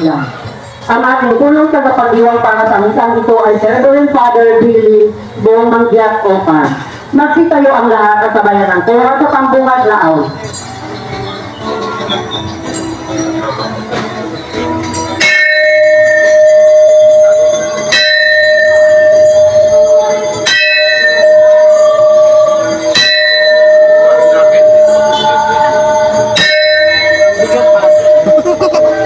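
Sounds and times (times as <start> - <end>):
metal pipe bell ringing: 12.7 - 29.0.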